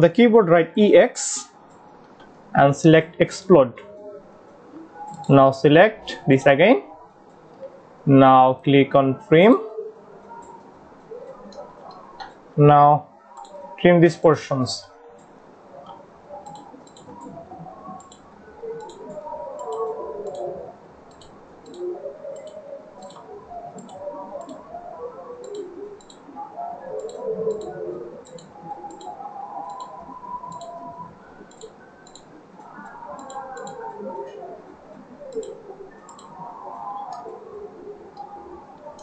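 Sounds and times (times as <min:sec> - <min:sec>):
mouse buttons clicking: 0:27.0 - 0:29.1.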